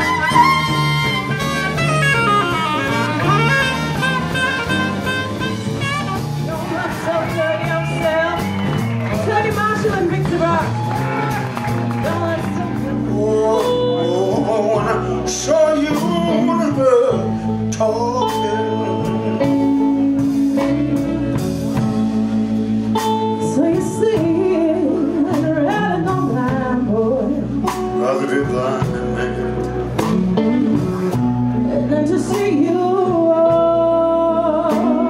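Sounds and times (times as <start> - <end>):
live blues band: 0.0 - 35.0
person singing: 12.0 - 21.1, 23.4 - 29.7, 31.6 - 35.0.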